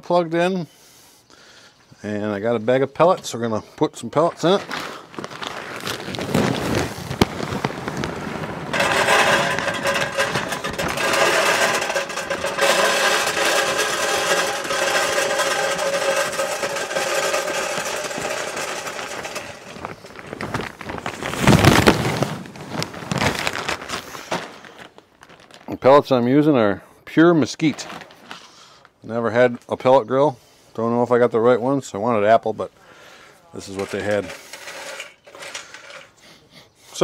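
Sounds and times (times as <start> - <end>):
rustle of handling: 4.3 - 25.8
wood pellets pouring into hopper: 4.5 - 24.9, 33.6 - 36.1
metal hopper ringing: 8.7 - 20.0.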